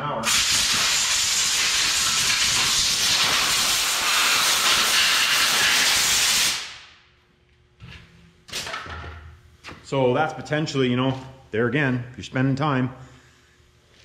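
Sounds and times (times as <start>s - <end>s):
compressed air blow gun hissing: 0.3s - 6.7s.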